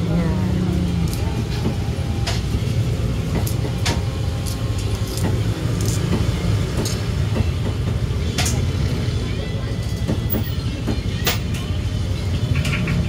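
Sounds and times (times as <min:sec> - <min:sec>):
low rumble of market noise: 0:00.0 - 0:13.0.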